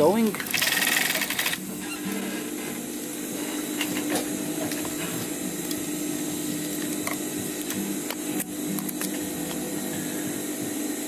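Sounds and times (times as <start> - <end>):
sewing machine running: 0.3 - 1.6.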